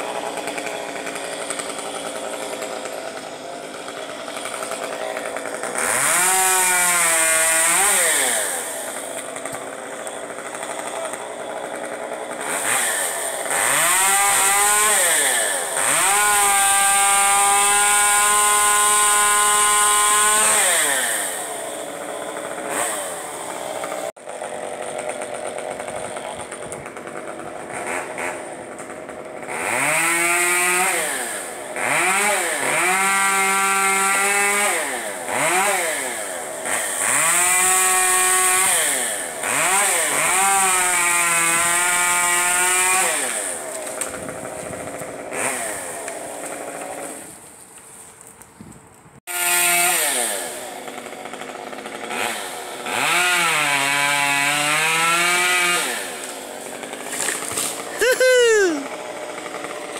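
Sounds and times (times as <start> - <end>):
chainsaw revving and idling: 0.0 - 47.6, 49.2 - 59.9.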